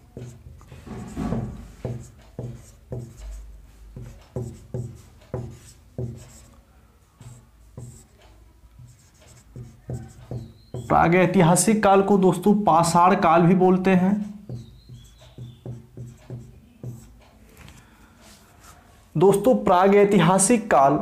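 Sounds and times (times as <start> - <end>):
marker pen scratching on whiteboard: 0.0 - 11.4, 13.7 - 17.6.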